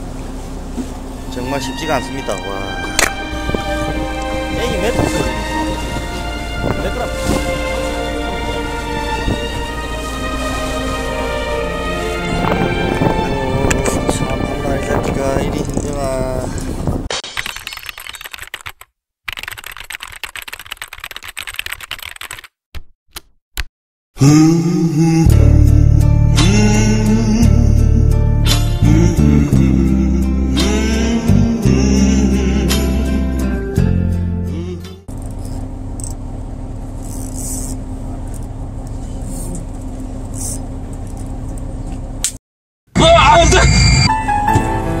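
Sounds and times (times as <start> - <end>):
boat engine running: 0.0 - 17.1, 34.6 - 42.2
soft music: 1.2 - 16.1, 24.2 - 35.1, 44.1 - 45.0
rapid keyboard typing clicks: 17.4 - 22.6.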